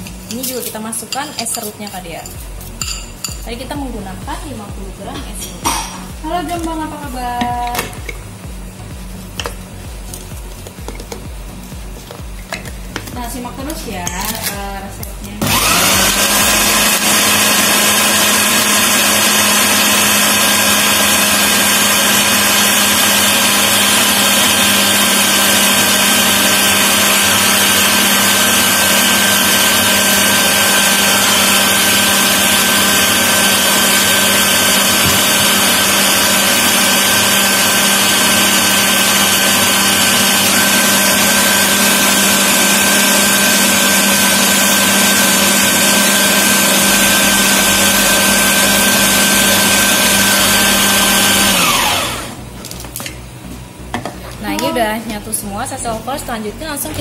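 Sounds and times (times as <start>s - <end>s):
food processor motor running: 15.4s - 52.6s.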